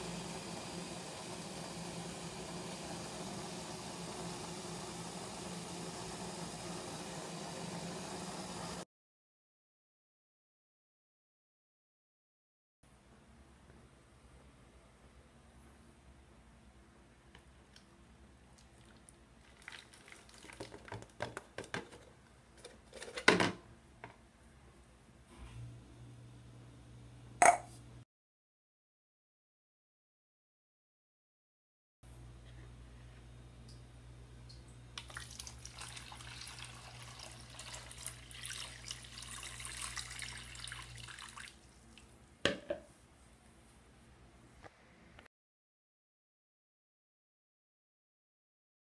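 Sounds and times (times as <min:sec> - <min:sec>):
water pouring and splashing into tub: 0:18.6 - 0:21.2, 0:35.0 - 0:42.1.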